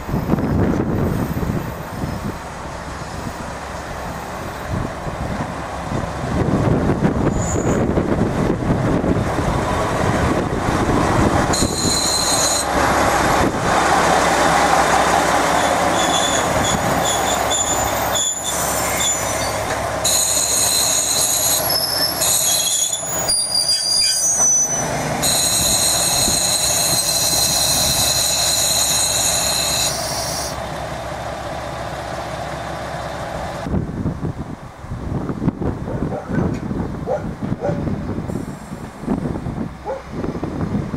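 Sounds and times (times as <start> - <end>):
train rumble: 0.0 - 40.9
train wheels squealing: 7.2 - 7.9, 11.5 - 12.7, 15.6 - 30.6.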